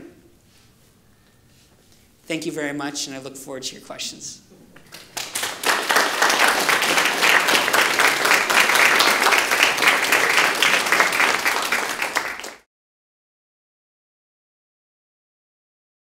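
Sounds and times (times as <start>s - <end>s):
audience applauding: 4.8s - 12.7s.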